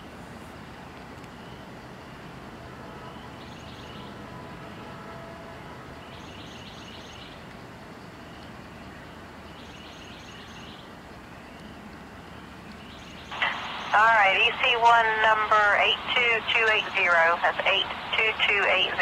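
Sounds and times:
distant freight train rumble: 0:00.0 - 0:19.0.

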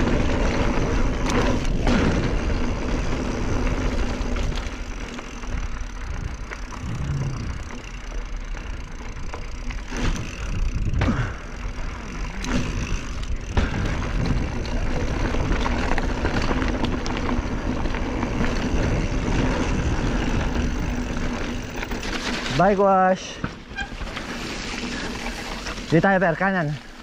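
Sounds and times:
bike tyres crunching on gravel: 0:00.0 - 0:27.0
wind rushing over camera: 0:06.1 - 0:07.7.

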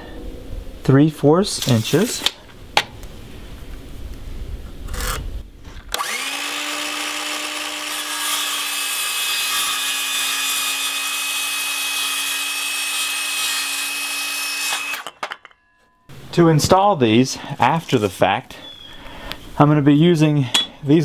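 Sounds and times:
circular saw cutting wood: 0:05.9 - 0:15.2.

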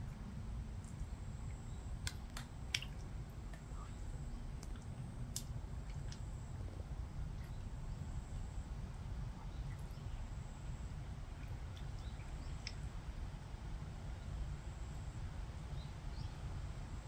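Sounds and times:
steady low rumble: 0:00.0 - 0:17.0
faint high chirps and ticks: 0:09.4 - 0:13.5.

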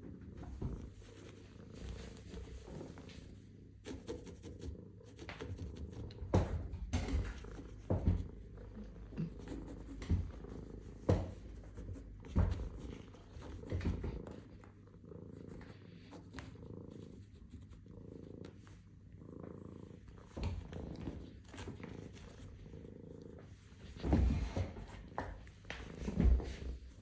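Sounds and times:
cat purring: 0:00.0 - 0:27.0
paws knocking on fabric: 0:00.3 - 0:14.6.

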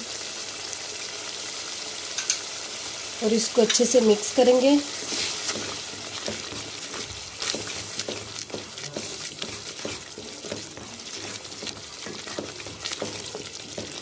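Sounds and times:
frying sizzle: 0:00.0 - 0:14.0
wooden spoon scraping a pan: 0:03.6 - 0:14.0.

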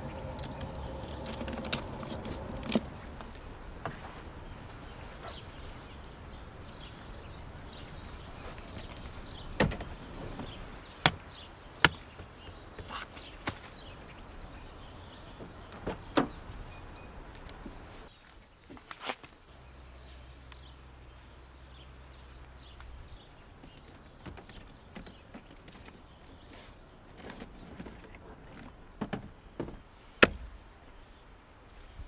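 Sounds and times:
low hum: 0:00.0 - 0:04.6
outdoor background hiss: 0:00.0 - 0:32.0.

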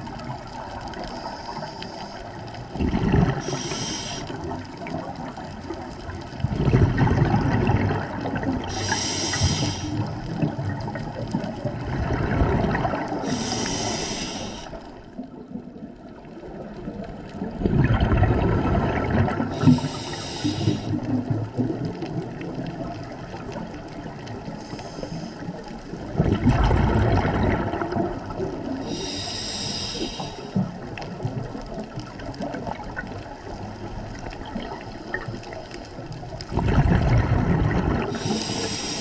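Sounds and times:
exhaled bubbles gurgling: 0:00.0 - 0:39.0
regulator inhale hiss: 0:00.9 - 0:02.6, 0:03.3 - 0:04.4, 0:08.6 - 0:10.2, 0:13.2 - 0:15.0, 0:19.5 - 0:21.1, 0:24.4 - 0:25.6, 0:28.7 - 0:30.6, 0:38.0 - 0:39.0.

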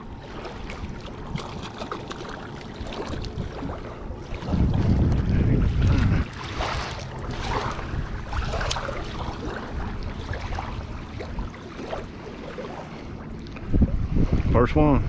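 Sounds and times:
water splashes: 0:00.0 - 0:15.0
waves lapping on concrete: 0:00.0 - 0:15.0
wind on microphone: 0:02.7 - 0:15.0.

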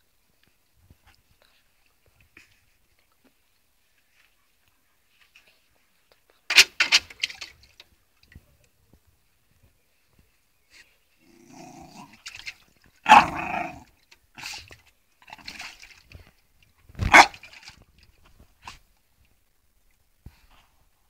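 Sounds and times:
dog barking: 0:13.1 - 0:13.4, 0:17.1 - 0:17.4.

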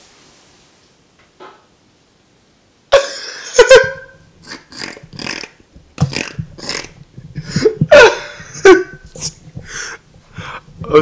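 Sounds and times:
breathy gasps: 0:09.6 - 0:11.0.

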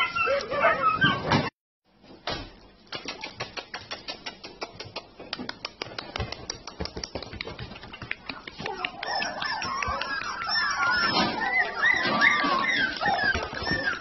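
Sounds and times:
dog claws clicking on hard floor: 0:02.9 - 0:10.6.

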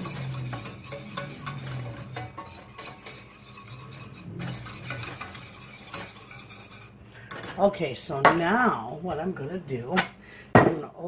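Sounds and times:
whisk scraping a metal pan: 0:00.0 - 0:07.7.

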